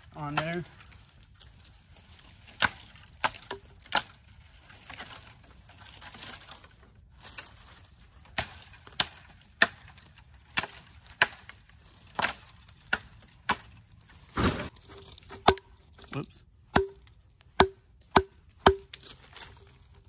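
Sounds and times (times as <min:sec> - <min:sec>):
knife chopping wood: 0:08.4 - 0:13.7, 0:15.3 - 0:15.7, 0:16.7 - 0:19.0.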